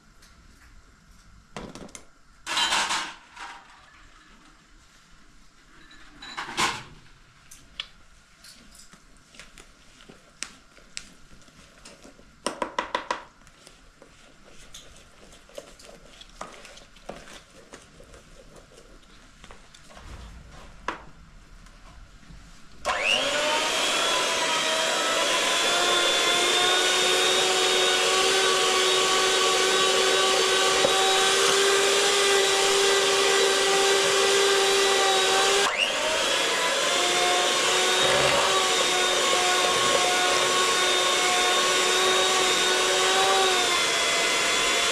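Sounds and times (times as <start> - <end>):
electric hand mixer whining: 22.9 - 44.9.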